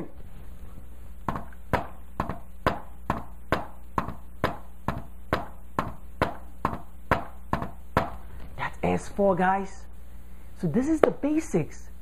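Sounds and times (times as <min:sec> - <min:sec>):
palm tapping on whiteboard: 0:01.3 - 0:08.2.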